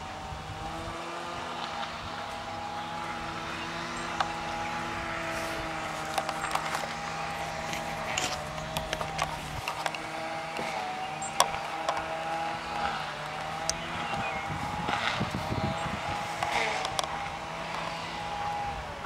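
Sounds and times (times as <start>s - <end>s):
motor hum: 0.0s - 19.0s
sharp clicks: 7.6s - 14.3s.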